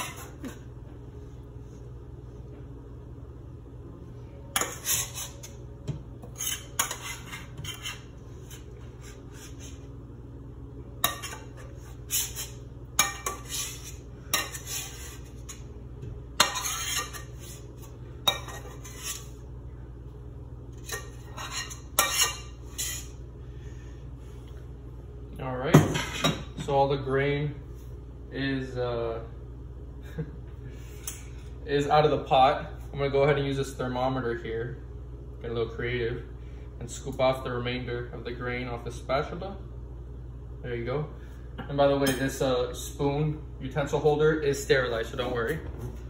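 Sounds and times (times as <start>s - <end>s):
metal spatula scraping pot: 0.0s - 0.5s, 4.6s - 5.6s, 6.2s - 9.8s, 11.0s - 15.6s, 16.4s - 17.7s, 18.3s - 19.4s, 20.8s - 23.1s
steady low hum: 0.0s - 46.0s.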